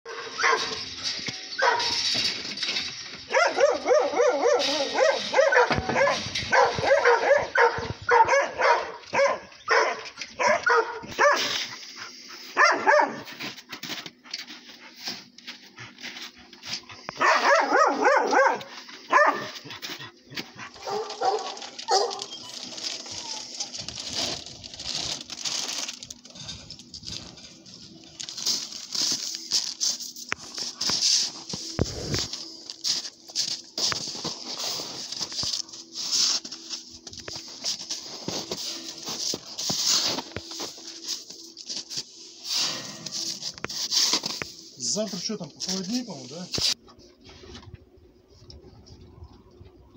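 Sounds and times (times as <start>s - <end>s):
dogs barking and yelping: 0.1s - 24.1s.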